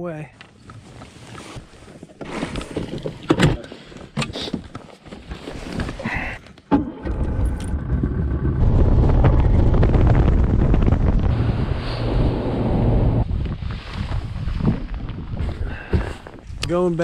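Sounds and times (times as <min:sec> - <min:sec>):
outboard motor rumbling: 0:06.7 - 0:13.6
wind on microphone: 0:07.1 - 0:16.7.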